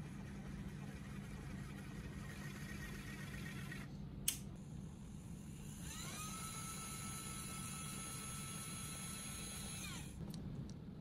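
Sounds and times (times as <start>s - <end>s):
sharp click: 4.3s - 4.5s
motor whine: 4.7s - 10.3s
small motor whirring: 5.0s - 10.2s.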